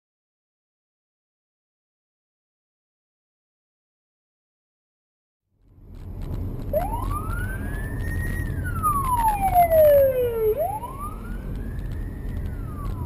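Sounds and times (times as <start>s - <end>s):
road and engine rumble: 5.6s - 13.0s
police siren wailing: 6.7s - 13.0s.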